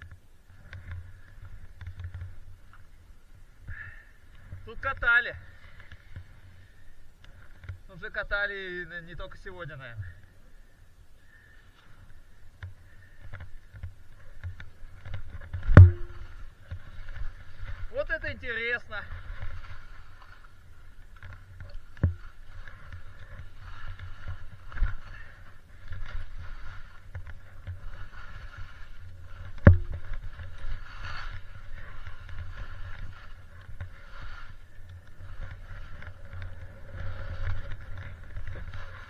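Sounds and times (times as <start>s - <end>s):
sharp knocks: 15.7s - 16.3s, 29.6s - 30.0s
skis hissing through snow: 26.1s - 29.6s, 30.3s - 37.7s.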